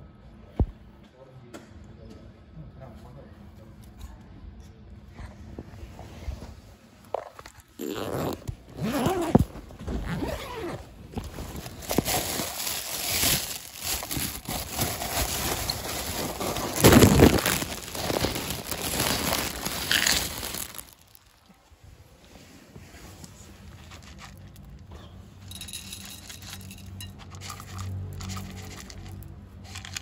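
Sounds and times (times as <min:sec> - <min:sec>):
phone microphone rubbing on clothing: 0:05.3 - 0:11.8.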